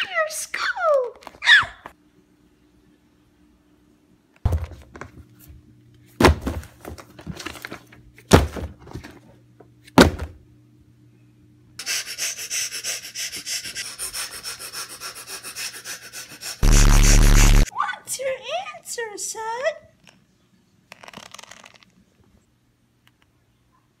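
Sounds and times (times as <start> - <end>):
binder and book thumping on floor: 4.5 - 5.2, 6.2 - 7.5, 8.3 - 9.2, 10.0 - 10.4.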